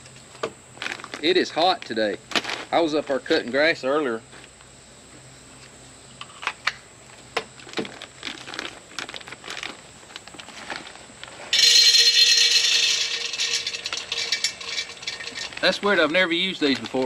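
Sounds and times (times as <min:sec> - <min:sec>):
plastic bag crinkling: 0:00.8 - 0:01.2, 0:07.6 - 0:17.0
pellets pouring into metal stove: 0:11.5 - 0:17.0.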